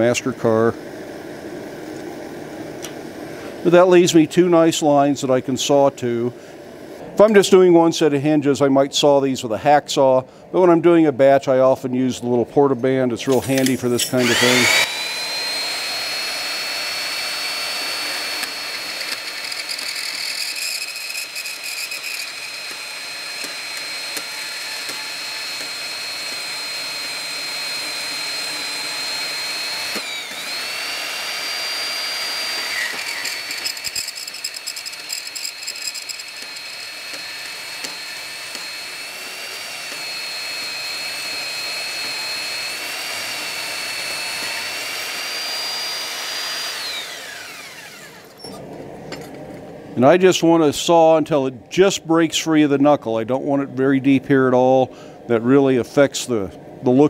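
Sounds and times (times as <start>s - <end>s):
band saw motor whine: 13.2s - 54.8s
saw blade rasping through steel: 13.5s - 48.6s.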